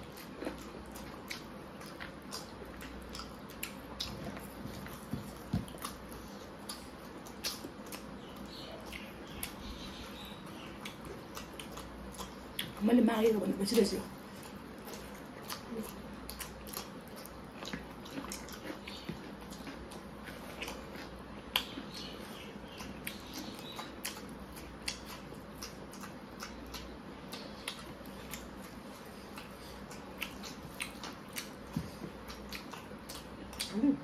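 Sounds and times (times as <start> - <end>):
chewing and lip-smacking: 0.0 - 34.0
low steady hum: 0.0 - 34.0
sharp wet clicks: 20.6 - 31.6.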